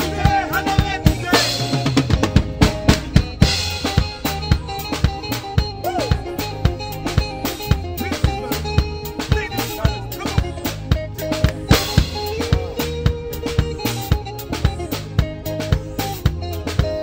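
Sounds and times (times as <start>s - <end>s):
bass guitar: 0.0s - 17.0s
drum kit groove: 0.0s - 17.0s
keyboard: 0.0s - 17.0s
vocal ad-libs: 4.0s - 16.1s.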